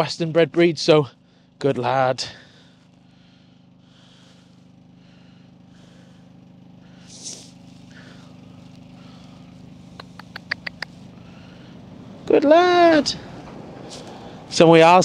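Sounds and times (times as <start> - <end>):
vehicle engine humming: 0.0 - 15.0
sharp clicks: 9.9 - 10.9.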